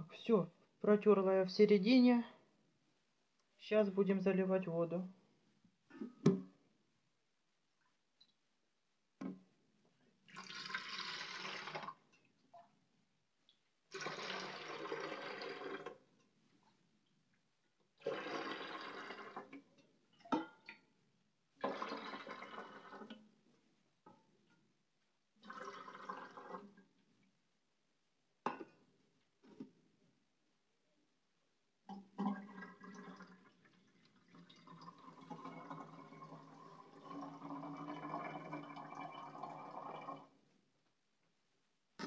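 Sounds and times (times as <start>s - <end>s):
water pouring into a tank: 10.3s - 12.0s, 13.9s - 16.0s, 18.0s - 19.7s, 21.6s - 23.2s, 25.4s - 26.8s, 32.0s - 40.4s.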